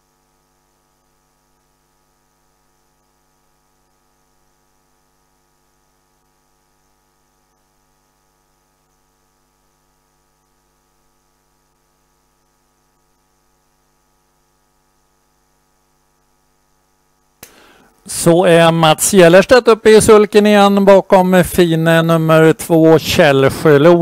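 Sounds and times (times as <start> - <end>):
electrical mains hum: 0.0 - 24.0
faint hiss: 17.1 - 24.0.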